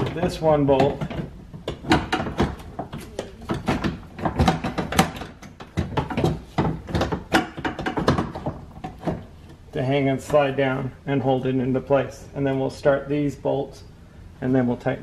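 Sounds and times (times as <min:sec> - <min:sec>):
window regulator clicking and knocking: 0:00.8 - 0:09.3.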